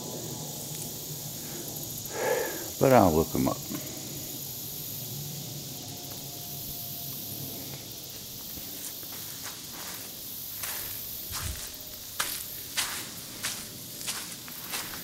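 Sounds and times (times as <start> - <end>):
steady high hiss: 0.0 - 15.0
footsteps on muddy sand: 7.7 - 15.0.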